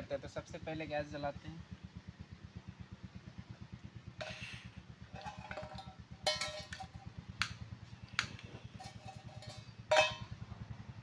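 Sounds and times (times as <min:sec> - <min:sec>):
low throbbing hum: 0:00.0 - 0:11.0
metal cookware clinking: 0:05.2 - 0:07.0, 0:08.7 - 0:10.3.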